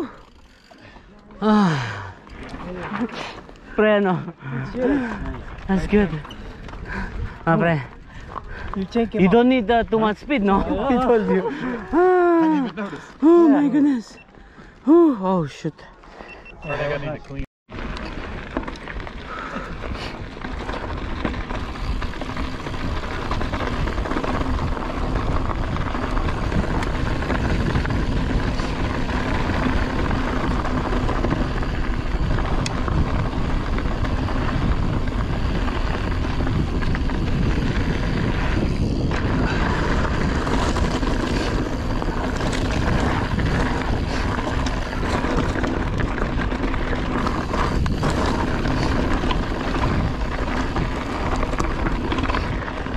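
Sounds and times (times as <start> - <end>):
bike tyres rolling on rocky trail: 0.0 - 52.9
wind on microphone: 19.3 - 52.9.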